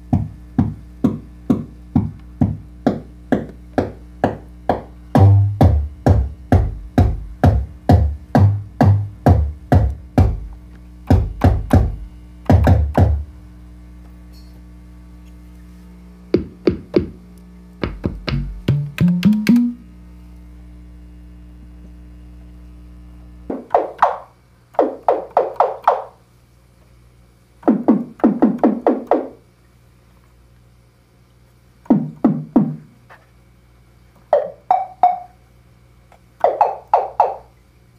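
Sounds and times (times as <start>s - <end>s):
synthesizer kick drum hits: 0.0s - 13.3s, 16.3s - 19.9s, 23.5s - 26.1s
low steady hum: 0.0s - 37.9s
synthesizer tom-like hits: 4.2s - 13.3s, 17.8s - 19.8s.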